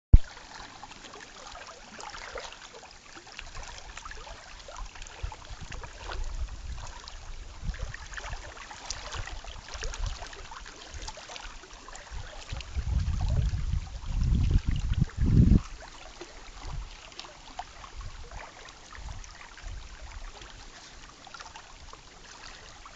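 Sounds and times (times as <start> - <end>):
small waves lapping: 0.2 - 22.9
wind buffeting microphone: 4.7 - 10.4, 12.0 - 15.8.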